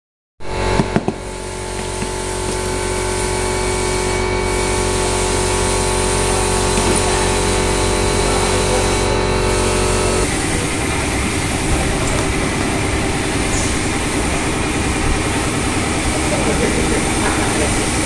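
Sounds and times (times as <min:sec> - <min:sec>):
motor humming: 0:00.4 - 0:18.0.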